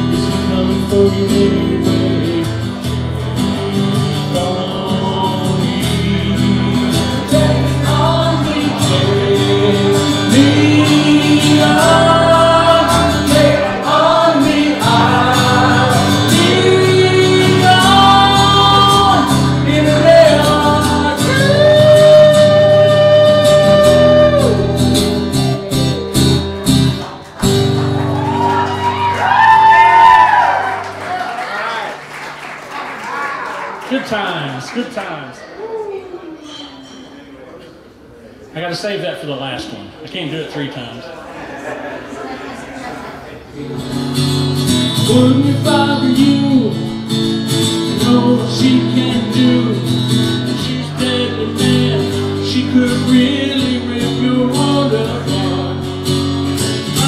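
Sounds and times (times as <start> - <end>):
strummed acoustic guitar: 0.0 - 28.3, 43.6 - 57.0
man singing long held notes: 3.4 - 24.8.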